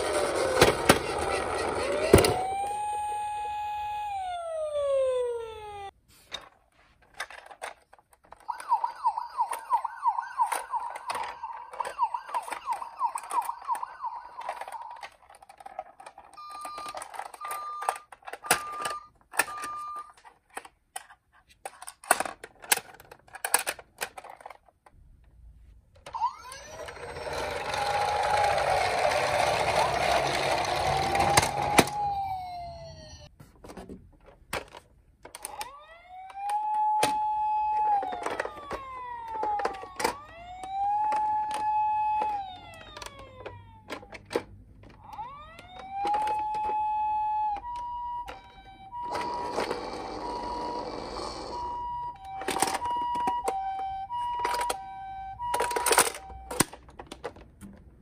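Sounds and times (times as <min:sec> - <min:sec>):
toy siren warbling: 0:00.0 - 0:05.9, 0:08.4 - 0:20.2, 0:26.1 - 0:33.3, 0:35.4 - 0:44.2, 0:45.0 - 0:56.8
hissy siren rising and falling: 0:01.1 - 0:05.9, 0:26.2 - 0:33.3, 0:35.8 - 0:43.8
plastic toys clicking: 0:07.0 - 0:25.0, 0:26.0 - 0:32.4, 0:34.2 - 0:58.0.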